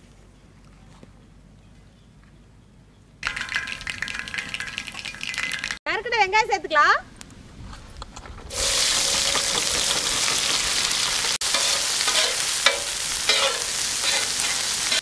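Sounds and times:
onions sizzling in hot oil: 8.5s - 15.0s.

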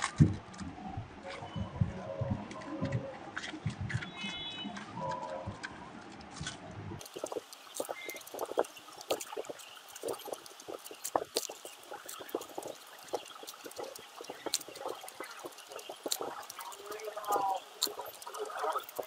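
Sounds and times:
panda chewing bamboo: 7.0s - 19.0s.

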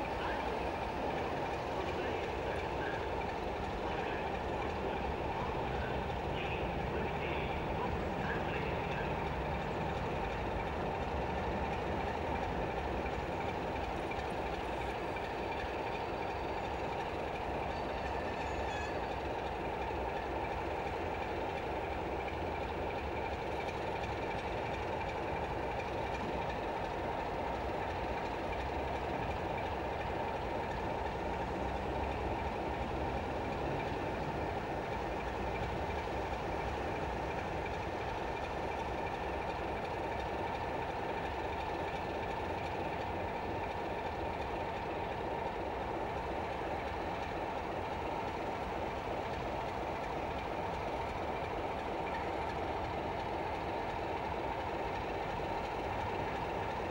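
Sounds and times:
diesel locomotive engine idling: 0.0s - 56.9s.

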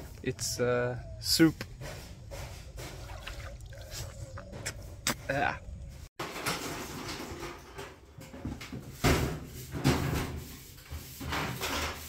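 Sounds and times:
sheet metal scraping and rattling: 6.2s - 12.0s.

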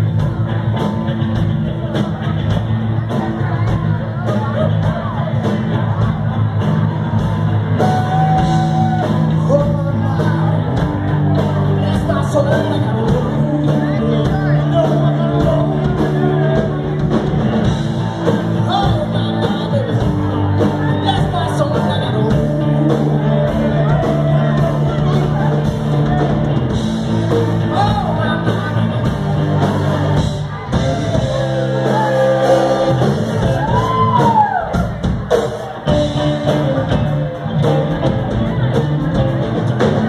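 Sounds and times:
bass guitar: 0.0s - 40.0s
drum kit: 0.0s - 40.0s
electric guitars: 0.0s - 40.0s
person singing: 7.8s - 17.6s.

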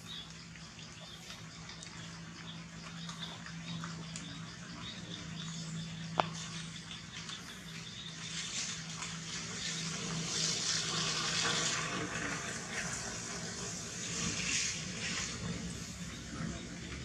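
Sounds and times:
rushing hiss: 10.1s - 15.8s.

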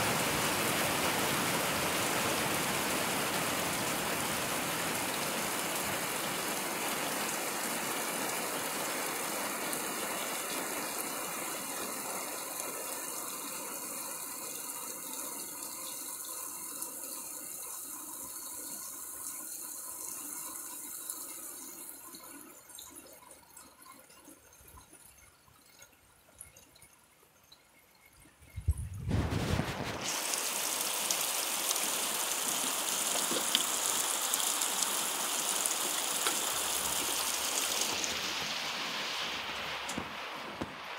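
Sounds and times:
heavy rain falling: 0.0s - 12.6s, 29.1s - 40.9s
rain ticks: 31.1s - 38.4s.

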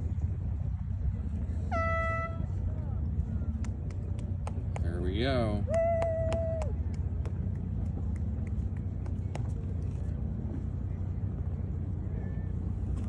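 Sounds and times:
motorboat engine rumble: 0.0s - 13.0s
horn blast: 1.7s - 2.6s.

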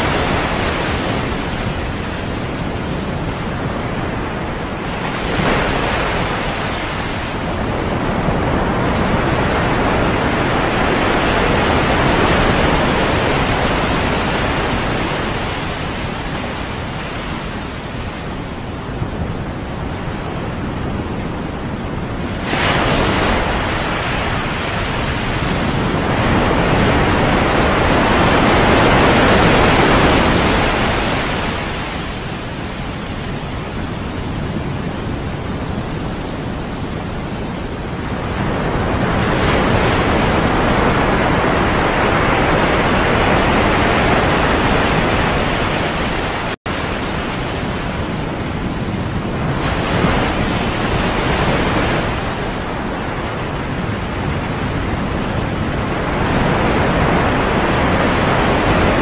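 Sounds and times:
sea waves breaking: 0.0s - 59.0s.

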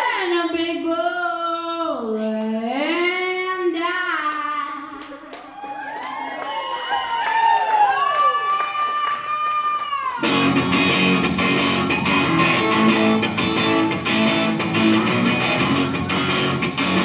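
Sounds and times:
electric guitar strumming chords: 10.2s - 17.0s.

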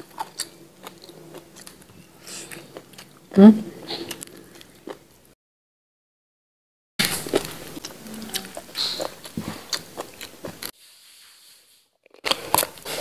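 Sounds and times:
biting and chewing meat: 0.0s - 5.0s, 7.0s - 10.7s, 12.0s - 13.0s.

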